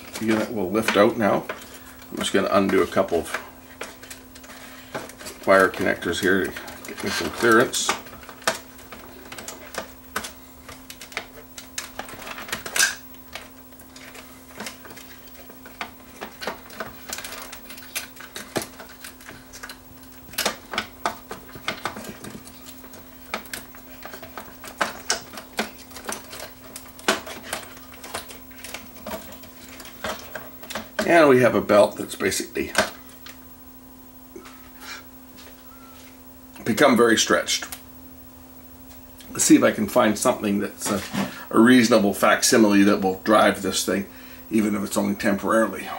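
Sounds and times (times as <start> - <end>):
faint steady hum: 0.0 - 45.9.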